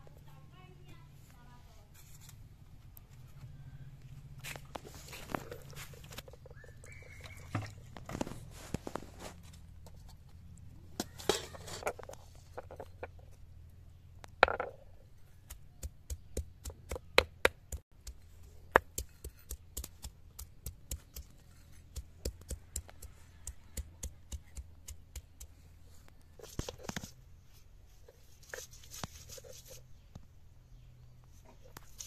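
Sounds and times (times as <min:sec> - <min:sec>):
rough stone scrape: 0:04.4 - 0:10.2, 0:11.0 - 0:13.3, 0:21.1 - 0:23.4, 0:27.9 - 0:30.0
stone knocking on grinding stone: 0:14.4 - 0:14.8.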